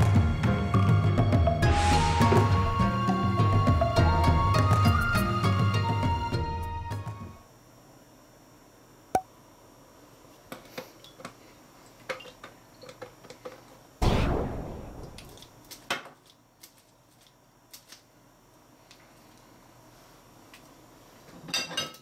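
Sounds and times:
dishes clinking in a sink: 21.3 - 22.0.

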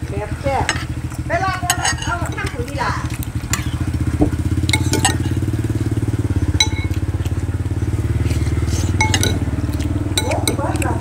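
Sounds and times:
small motorcycle engine running: 0.0 - 11.0
spoon clinking against ceramic bowl: 1.6 - 3.8, 4.6 - 5.8, 6.6 - 7.2, 8.8 - 11.0.

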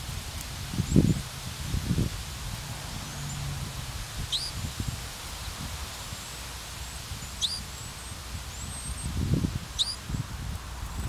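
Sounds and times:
grass rustling in wind: 0.0 - 11.0
sparrow chirps: 4.2 - 4.6, 6.2 - 10.3.

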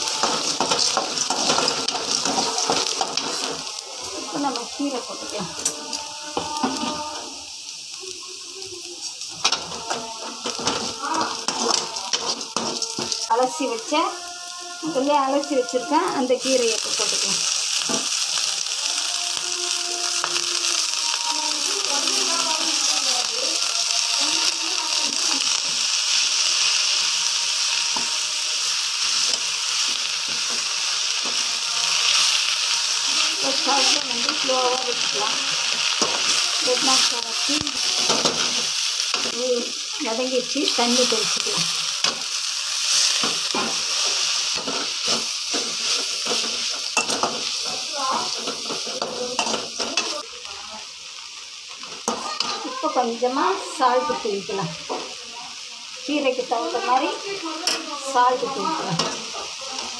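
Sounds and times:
metal ladle scraping a pan: 0.0 - 7.4, 9.2 - 13.8, 25.2 - 50.2
leaves sizzling in a pan: 0.0 - 59.9.

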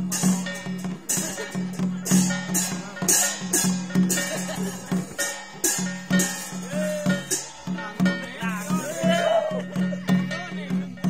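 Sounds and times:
drum beat: 0.0 - 11.0
ringing percussion strikes: 0.0 - 11.0
voice chanting: 6.5 - 11.0.

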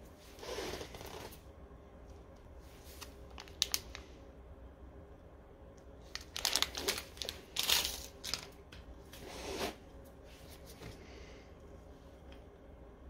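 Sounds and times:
plastic packet crinkling: 2.9 - 4.1, 6.0 - 8.6.

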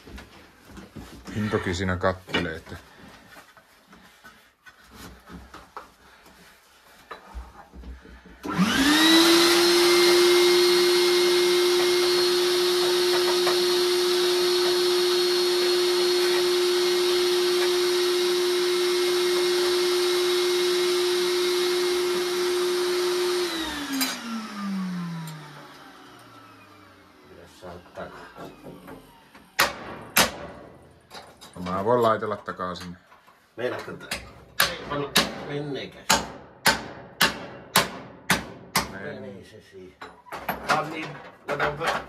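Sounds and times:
vacuum cleaner motor whine: 8.4 - 29.6.

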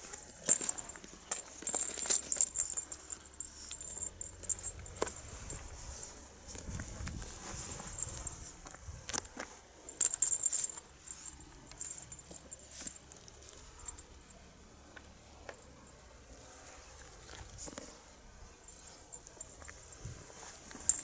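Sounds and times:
jingling clicks: 0.0 - 6.0, 7.8 - 14.4, 20.6 - 21.0
cat toy clicks and rattles: 0.1 - 5.7, 10.0 - 14.2.

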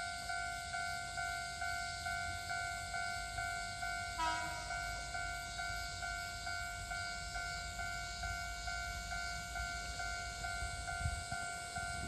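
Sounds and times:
level crossing alarm ringing: 0.0 - 12.0
train horn toot: 4.1 - 5.1.

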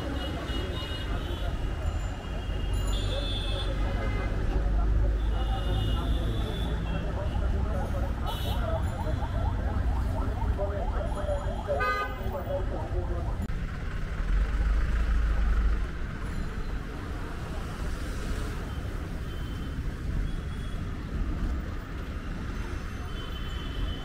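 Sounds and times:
road traffic rumble: 0.0 - 24.0.

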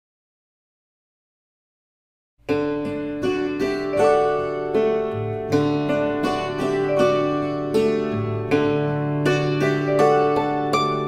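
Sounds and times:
plucked string melody: 2.4 - 11.0.

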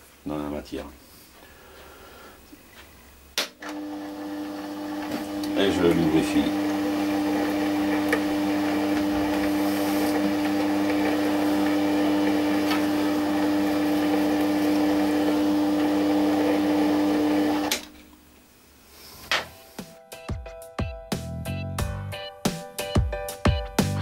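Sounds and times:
metal lathe whining: 3.7 - 17.7.

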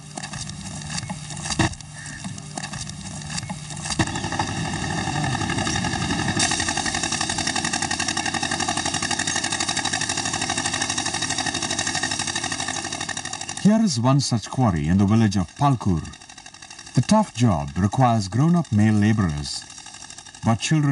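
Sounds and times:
machinery engine pulsing: 0.0 - 20.9.

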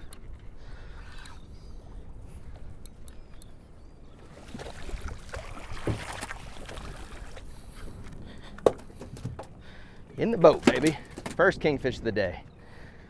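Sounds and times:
water splashing: 4.2 - 7.6
fish thrashing beside boat: 4.4 - 7.5.

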